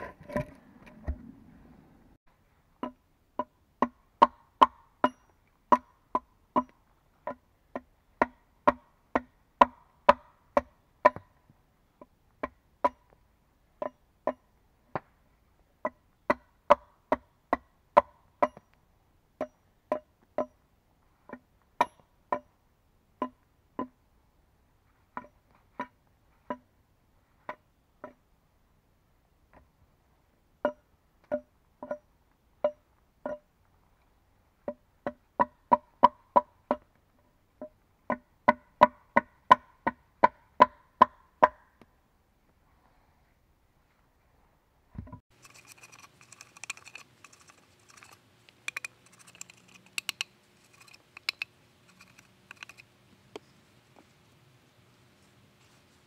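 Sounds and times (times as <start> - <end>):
axe chopping wooden log: 2.8 - 11.3, 15.8 - 18.6, 38.1 - 41.6.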